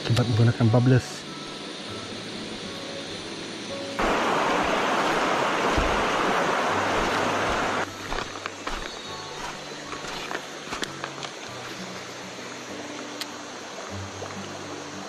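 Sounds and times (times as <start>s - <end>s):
stream rushing over pebbles: 3.7s - 15.0s.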